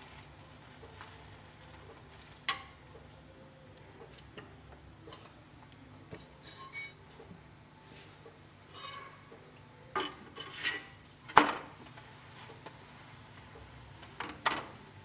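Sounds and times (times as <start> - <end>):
faint sizzling: 0.0 - 7.0.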